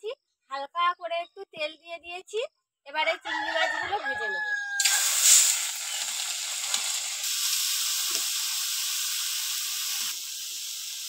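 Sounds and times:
shrimp sizzling in hot oil: 4.8s - 11.0s.

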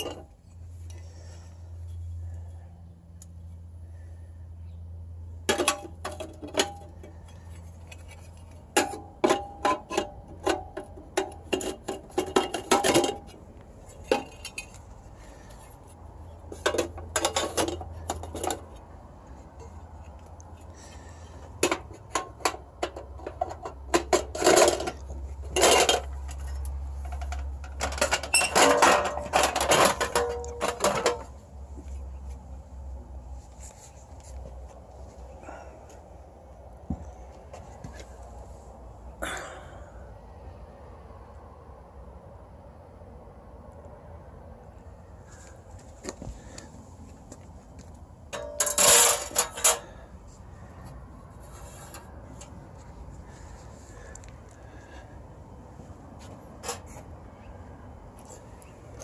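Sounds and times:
sheet metal parts clinking: 5.5s - 13.4s, 16.5s - 18.8s, 21.6s - 31.4s, 48.3s - 50.0s.

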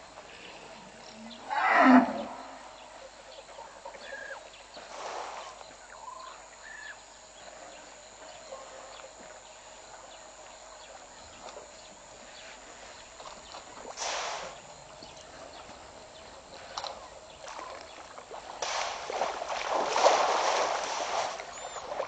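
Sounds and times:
faint bird calls: 0.3s - 4.6s
elephant call: 1.3s - 2.8s.

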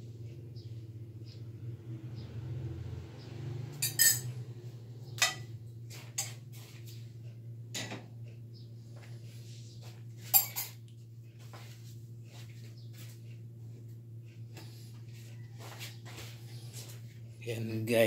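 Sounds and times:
metal spoon clinking on saucepan: 3.8s - 4.4s, 5.2s - 5.5s, 10.3s - 10.8s.

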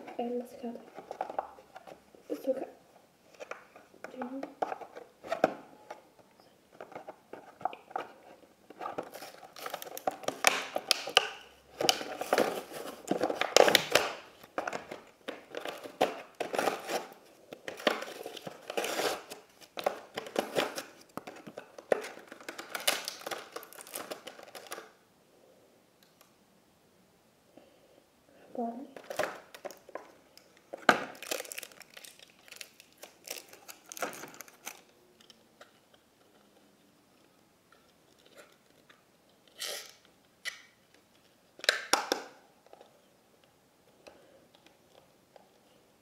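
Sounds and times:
plastic packaging crinkling: 8.7s - 25.0s, 29.0s - 36.4s.

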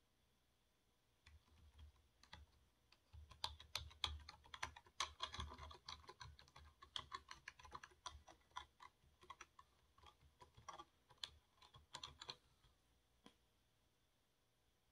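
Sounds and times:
computer keyboard typing: 1.2s - 12.4s.

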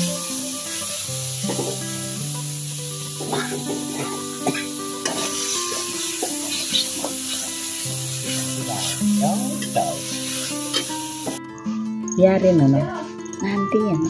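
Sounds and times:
food sizzling in oil: 0.0s - 11.4s
spatula clacking against pan: 3.2s - 7.5s
metal spatula scraping wok: 3.2s - 11.4s.

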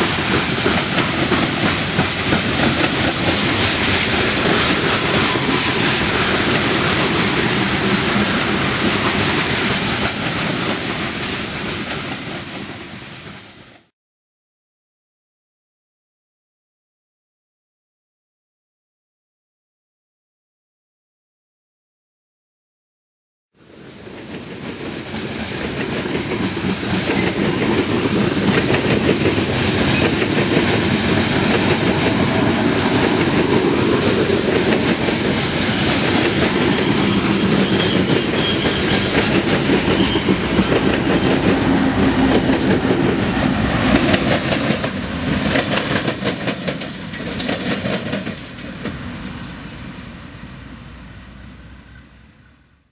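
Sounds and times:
train wheels clacking over rails: 0.0s - 13.9s, 23.6s - 50.2s.

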